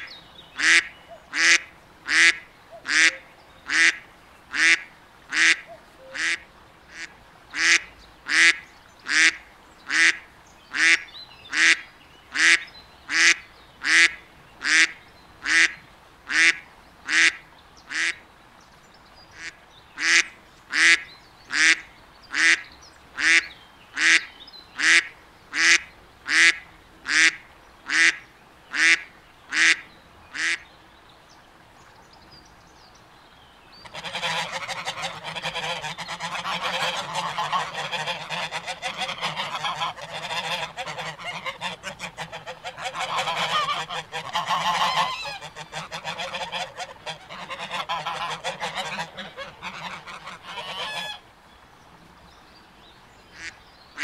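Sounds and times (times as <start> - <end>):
duck quacking: 0.0 - 18.2, 19.4 - 22.6, 23.2 - 30.6, 33.8 - 51.2, 53.4 - 53.6
flock of geese honking: 33.8 - 51.2.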